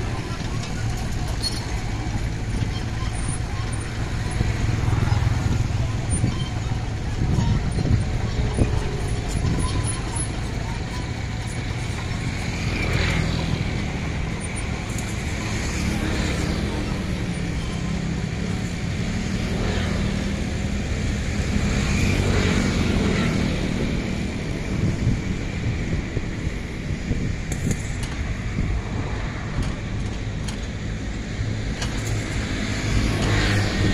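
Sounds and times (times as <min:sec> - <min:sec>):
excavator diesel engine running: 0:00.0 - 0:33.9.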